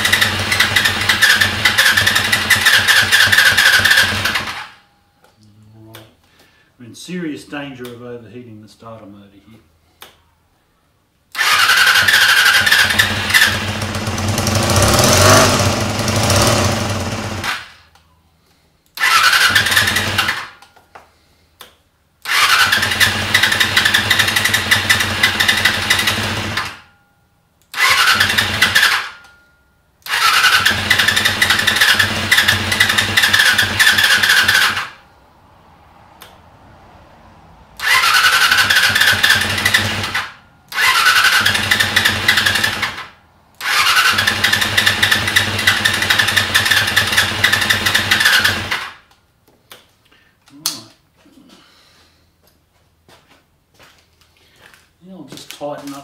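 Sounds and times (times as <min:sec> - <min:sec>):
electric starter cranking engine: 0:00.0 - 0:04.7, 0:11.3 - 0:17.7, 0:19.0 - 0:20.6, 0:22.2 - 0:26.8, 0:27.7 - 0:29.2, 0:30.0 - 0:35.0, 0:37.8 - 0:49.1.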